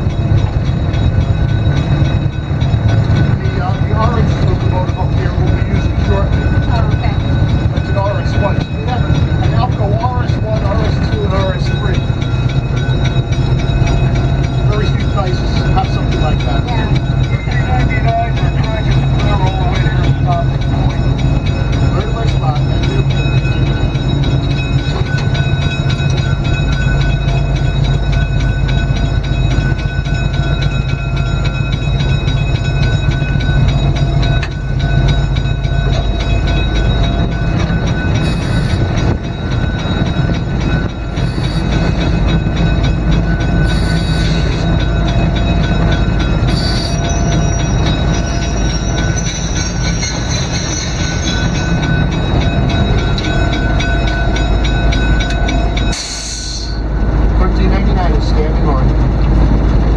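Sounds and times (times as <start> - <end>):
diesel locomotive engines droning: 0.0 - 59.9
wheel squeals: 29.3 - 56.9.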